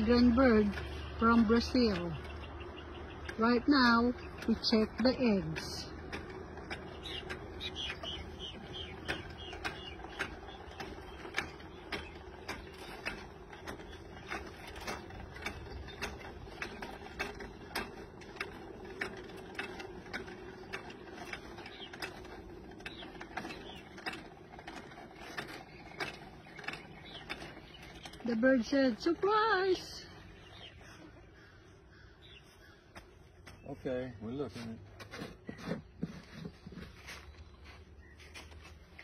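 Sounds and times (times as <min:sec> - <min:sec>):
winch ratchet clicking: 0:00.0 - 0:30.8.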